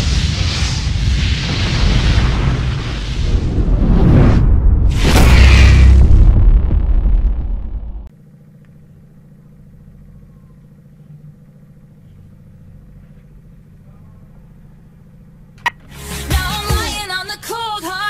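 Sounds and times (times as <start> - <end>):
low room tone hum: 5.2 - 15.9.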